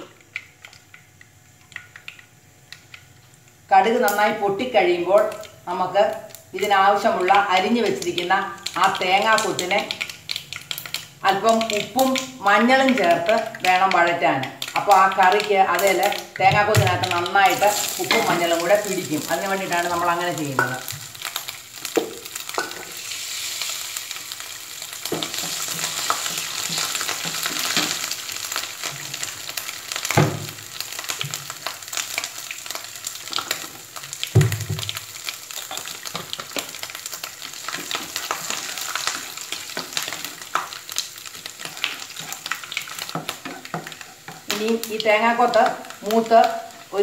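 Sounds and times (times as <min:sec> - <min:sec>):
food sizzling in hot oil: 0:00.0 - 0:47.0
wooden spatula stirring: 0:35.6 - 0:44.8.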